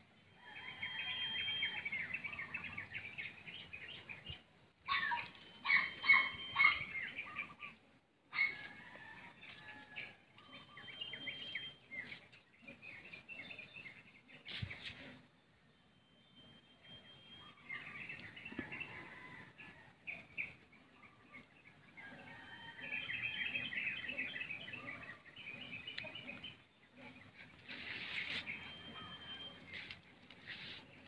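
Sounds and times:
small birds chirping: 16.2s - 19.4s, 20.1s - 31.0s.

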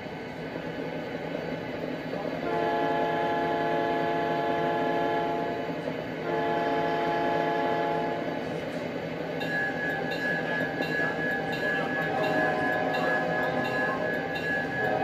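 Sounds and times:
diesel engine rumble: 0.0s - 15.0s
locomotive chime horn blasts: 2.4s - 5.6s, 6.2s - 8.3s, 9.4s - 15.0s.

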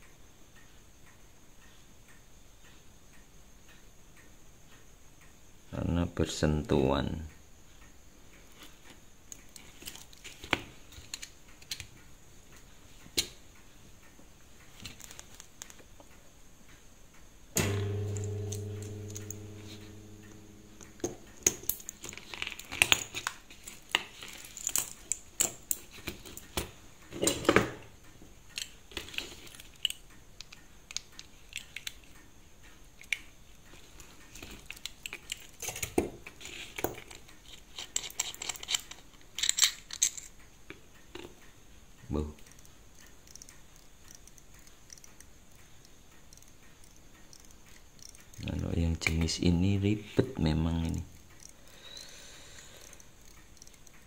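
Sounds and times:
low hum: 17.6s - 22.8s
metallic clicks and scrapes of watch: 33.0s - 40.4s, 42.4s - 48.4s, 51.2s - 51.6s, 52.8s - 54.0s.

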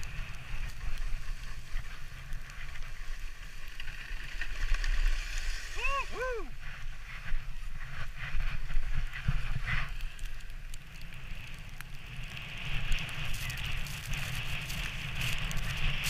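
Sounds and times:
sledge runners scraping snow: 0.0s - 5.8s, 6.6s - 10.3s, 11.2s - 16.0s
wind rumbling on microphone: 0.0s - 16.0s.

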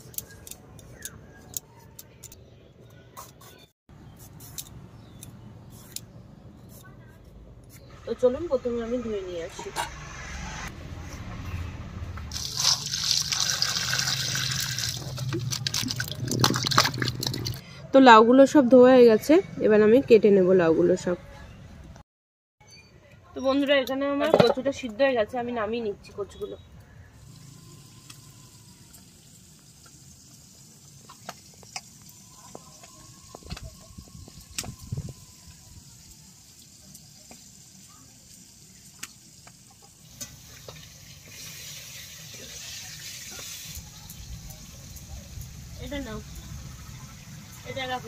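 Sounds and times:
water sloshing and dripping: 12.3s - 17.6s
water splashes: 12.3s - 17.6s.

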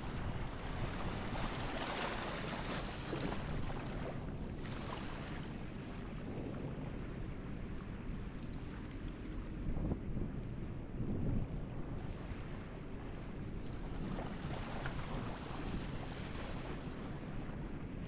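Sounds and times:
small waves washing on beach: 0.0s - 6.2s, 13.3s - 17.9s
wind rumble on microphone: 0.0s - 18.0s.

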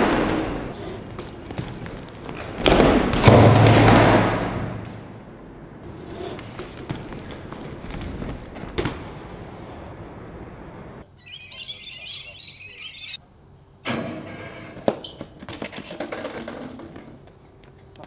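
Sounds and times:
bike tyres rolling on hard ground: 0.0s - 10.9s, 14.8s - 18.0s
birds chirping: 11.1s - 13.2s.

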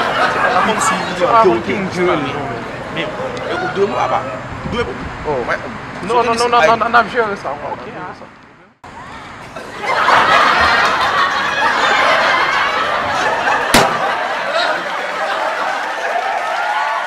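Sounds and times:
crowd laughing: 0.0s - 1.6s, 9.4s - 16.5s
sharp crack: 13.7s - 14.4s.

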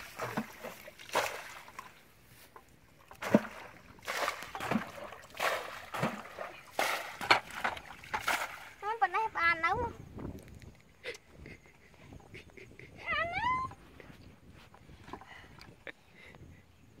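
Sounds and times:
bucket splashing muddy water: 0.0s - 2.1s, 3.0s - 9.2s.

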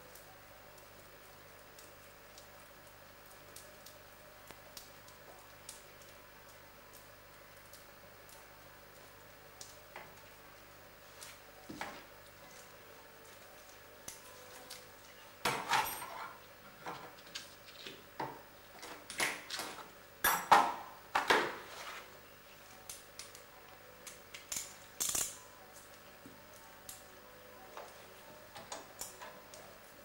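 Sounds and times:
metal tools clinking: 15.6s - 16.4s.

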